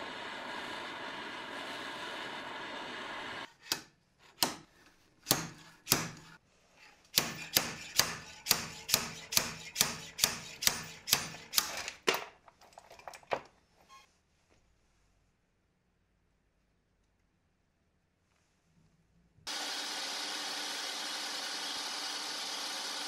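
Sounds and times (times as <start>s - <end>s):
torch hissing: 0.0s - 3.5s
hammer tapping metal: 7.2s - 11.7s.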